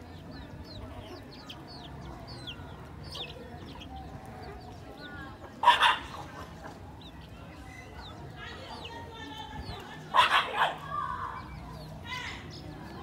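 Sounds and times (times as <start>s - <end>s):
chickens peeping: 0.0s - 13.0s
chicken squawk: 5.6s - 6.5s, 10.1s - 11.0s.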